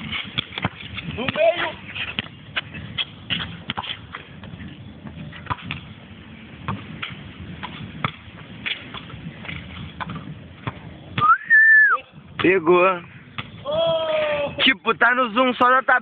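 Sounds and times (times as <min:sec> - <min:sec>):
basketball bouncing: 0:00.0 - 0:05.9, 0:06.6 - 0:11.3.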